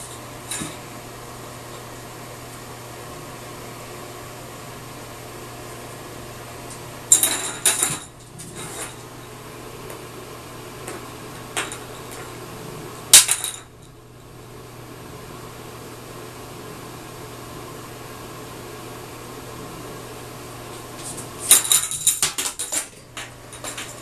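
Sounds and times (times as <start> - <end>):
steady low hum: 0.0 - 24.0
plastic toy clattering in bathtub: 21.4 - 24.0.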